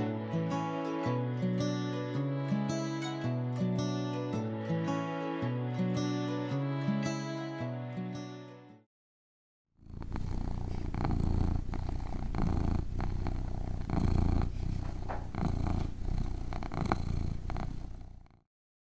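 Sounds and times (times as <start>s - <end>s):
soft guitar music: 0.0s - 8.8s
cat purring: 9.8s - 18.4s.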